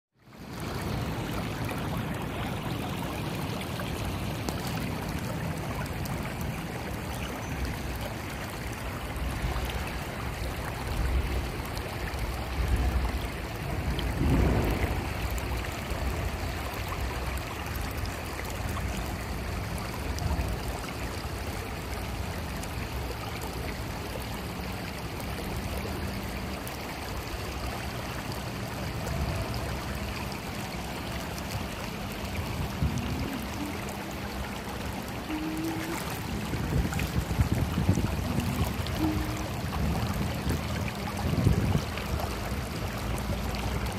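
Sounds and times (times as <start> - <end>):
creek water babbling over stones: 0.2 - 43.9.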